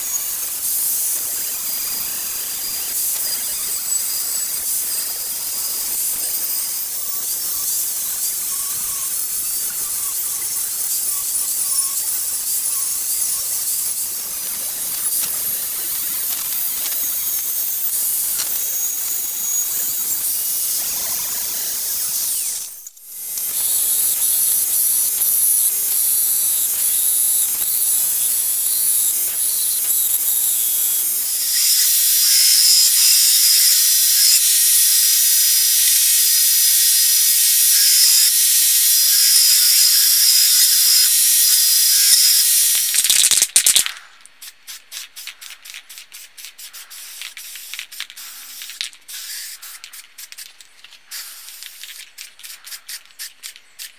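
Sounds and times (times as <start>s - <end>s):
belt grinder grinding steel: 0.0s - 44.0s.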